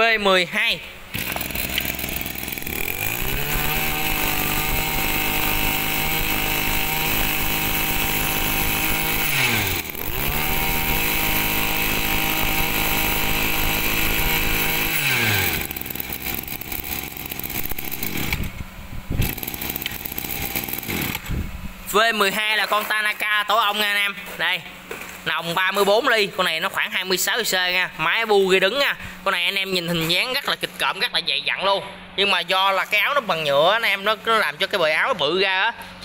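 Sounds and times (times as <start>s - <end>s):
brush cutter engine revving: 1.1s - 21.6s.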